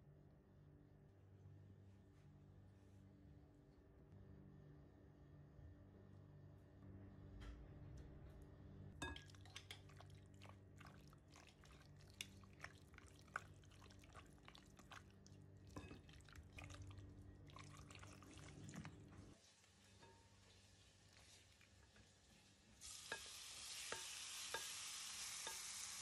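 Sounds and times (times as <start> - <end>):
low steady hum: 0.0 - 19.4
spoon tapping glass bowl: 9.0 - 9.9
wet mixing sounds: 9.0 - 22.5.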